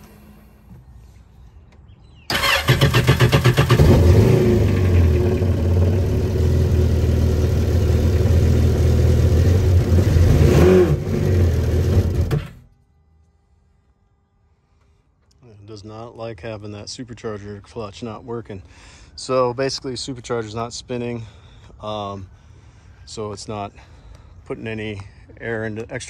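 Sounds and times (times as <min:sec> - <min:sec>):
jet ski engine running: 0:02.6 - 0:10.4.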